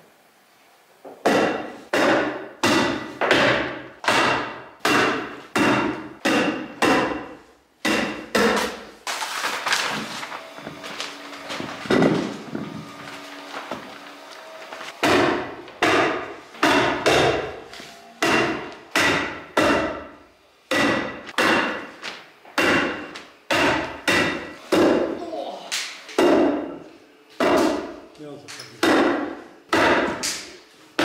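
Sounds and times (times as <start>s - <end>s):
hammer striking wood: 1.2s - 8.9s, 11.9s - 12.6s, 15.0s - 17.6s, 18.2s - 22.0s, 22.6s - 25.2s, 26.1s - 26.8s, 27.4s - 28.0s, 28.8s - 31.0s.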